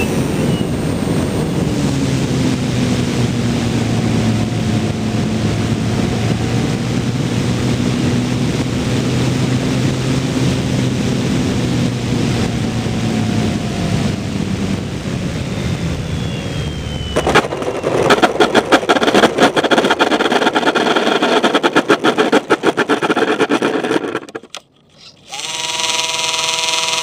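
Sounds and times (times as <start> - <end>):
air rushing past plane: 0.0 - 24.4
plane touching down knock: 17.2 - 24.4
airframe clattering and scraping: 17.2 - 25.0
steady electronic buzz: 18.4 - 27.0.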